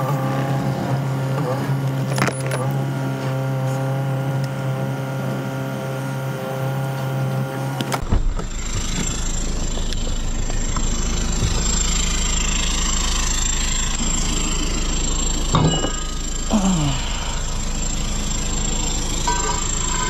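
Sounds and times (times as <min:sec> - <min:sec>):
truck engine running: 0:00.0 - 0:20.0.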